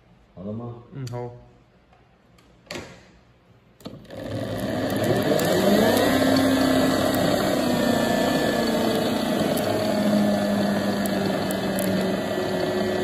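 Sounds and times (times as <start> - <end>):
mechanical running noise: 3.9 - 13.0
electric motor whine: 4.1 - 13.0.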